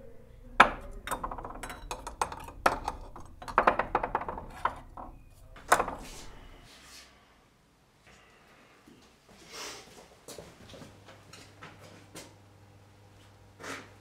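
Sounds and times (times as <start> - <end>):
glass jars clinking: 0.6 - 6.6.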